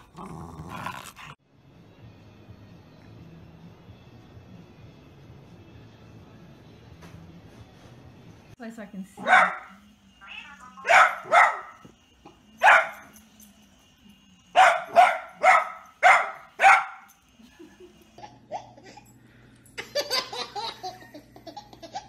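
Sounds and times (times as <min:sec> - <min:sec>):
dog barking: 0:09.2 - 0:09.8, 0:10.8 - 0:11.8, 0:12.6 - 0:13.1, 0:14.6 - 0:17.1.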